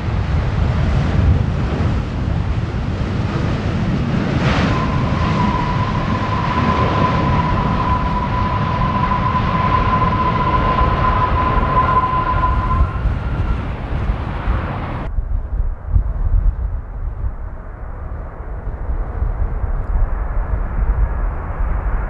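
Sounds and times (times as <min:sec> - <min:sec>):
high engine whine: 0:00.0 - 0:15.2
jet engines rumbling: 0:00.0 - 0:22.0
wind buffeting microphone: 0:00.0 - 0:22.0.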